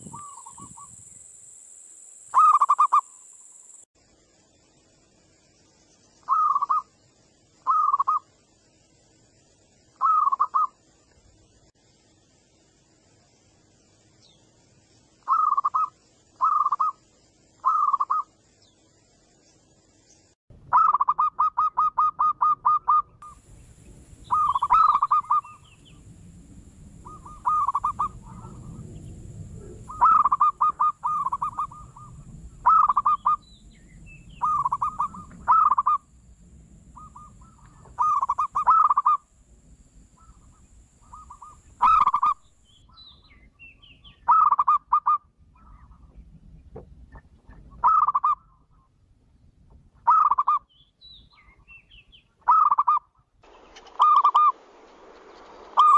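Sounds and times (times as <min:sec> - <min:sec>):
dove cooing: 0:00.0 - 0:00.9, 0:06.3 - 0:06.8, 0:07.7 - 0:08.2, 0:10.0 - 0:10.7, 0:15.3 - 0:17.0, 0:17.6 - 0:18.2, 0:20.7 - 0:23.4, 0:24.3 - 0:25.8, 0:27.0 - 0:33.4, 0:34.4 - 0:36.0, 0:37.0 - 0:39.2, 0:40.2 - 0:42.4, 0:44.3 - 0:46.0, 0:47.8 - 0:48.4, 0:53.8 - 0:54.6.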